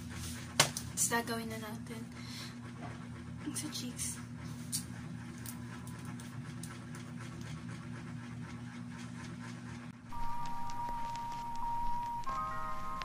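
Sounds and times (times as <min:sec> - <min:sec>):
low room hum: 0:00.0 - 0:13.0
background music: 0:10.2 - 0:13.0.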